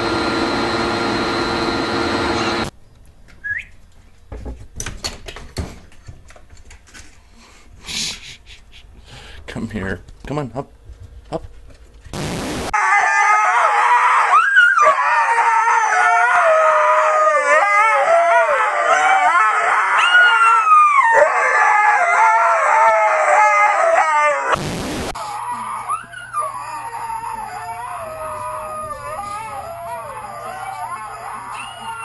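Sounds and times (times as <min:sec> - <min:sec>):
dog howling: 0:12.8 - 0:24.6, 0:25.2 - 0:32.0.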